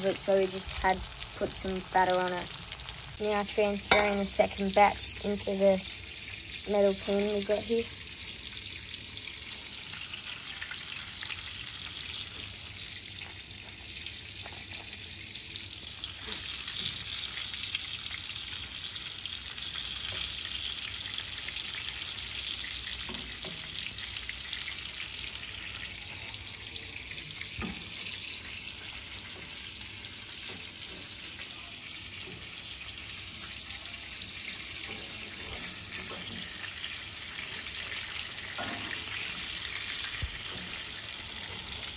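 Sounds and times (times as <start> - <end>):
oil sizzling in frying pan: 0.0 - 41.9
metal tongs clicking on pan: 3.9 - 4.3.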